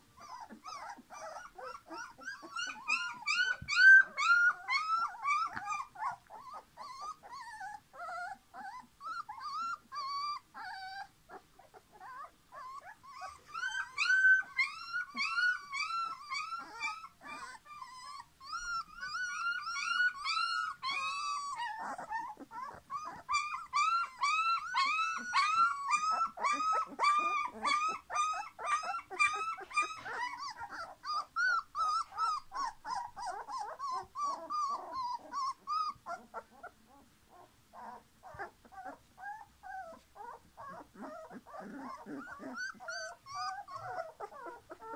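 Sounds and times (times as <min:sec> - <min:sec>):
puppies whining and squealing: 0:00.0 - 0:44.9.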